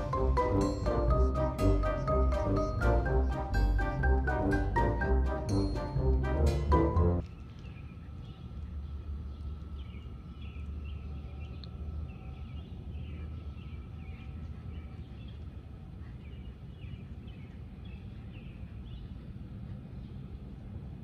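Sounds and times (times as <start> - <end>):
low steady rumble: 0.0 - 21.0
small birds chirping: 7.2 - 20.4.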